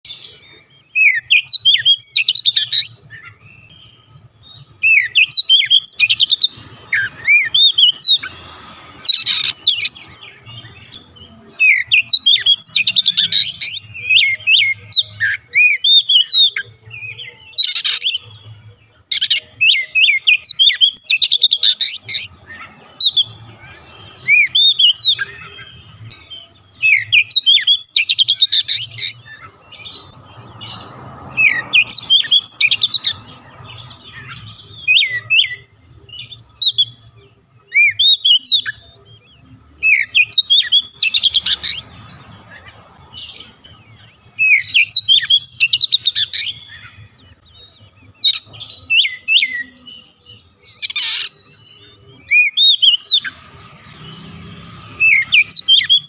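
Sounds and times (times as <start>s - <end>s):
bird singing whistled phrases: 50.8s - 53.4s.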